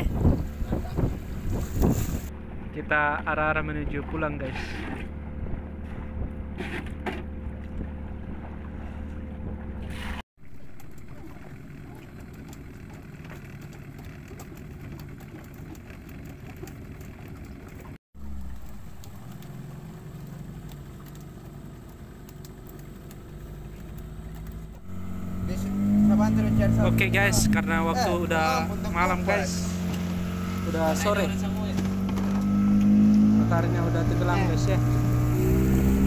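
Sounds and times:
wind noise: 0.0 - 2.3
boat engine running: 0.0 - 36.0
water noise: 0.0 - 36.0.

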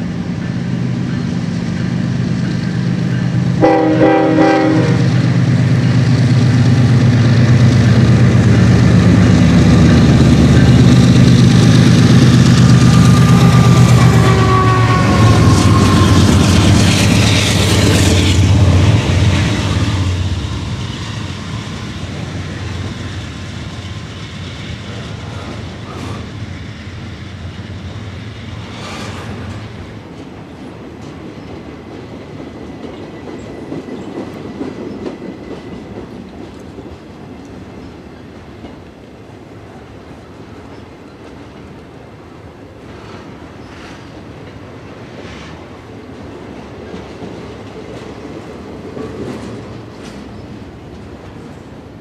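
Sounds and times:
train cars clanking: 0.0 - 39.1
train wheels clickety-clack: 0.0 - 39.1, 40.7 - 42.0, 42.8 - 51.9
diesel locomotive engine drone: 0.0 - 52.0.

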